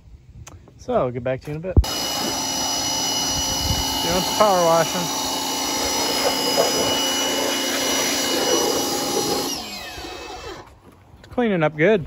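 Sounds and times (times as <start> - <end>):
water jet spraying: 1.8 - 10.7
pressure washer motor whining: 1.8 - 10.8.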